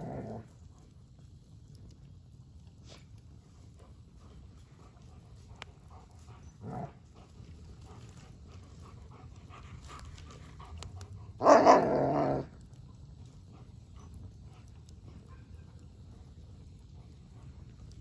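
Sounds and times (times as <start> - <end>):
dog growling: 0.0 - 0.5, 6.6 - 7.3, 11.3 - 12.6.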